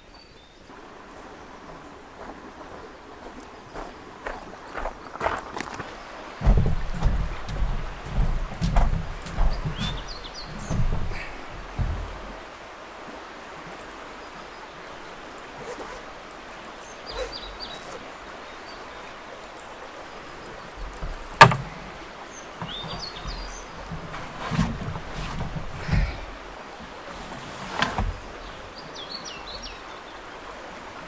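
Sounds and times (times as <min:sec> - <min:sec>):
dull thumps on wooden boards: 0:06.4 - 0:12.4, 0:20.8 - 0:22.0, 0:22.6 - 0:26.4
faint bird chirps: 0:09.5 - 0:11.5, 0:16.8 - 0:20.7
sharp knock: 0:21.4 - 0:21.7.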